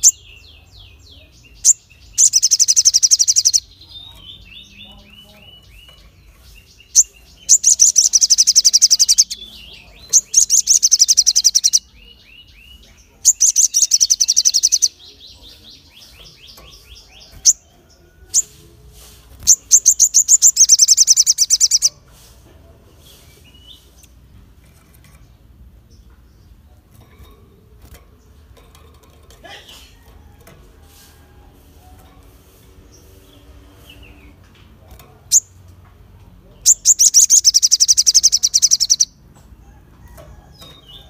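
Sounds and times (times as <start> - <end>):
sunbird singing fast trills: 0.0 - 18.6, 19.4 - 22.0, 36.6 - 39.2
soft bird chirping: 0.0 - 35.8, 36.4 - 39.2.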